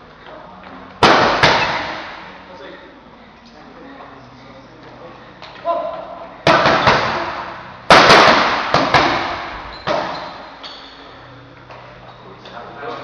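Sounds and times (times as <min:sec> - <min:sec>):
boxing gloves hitting mitts: 0:01.0 - 0:02.2, 0:06.4 - 0:10.3.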